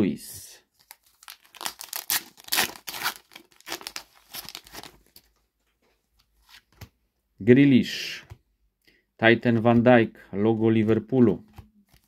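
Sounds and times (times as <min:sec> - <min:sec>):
foil wrapper tearing and crinkling: 0:00.8 - 0:05.2.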